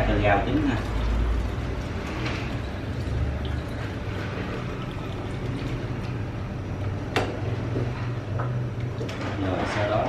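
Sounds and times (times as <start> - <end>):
broth pouring over noodles: 0.4 - 6.6.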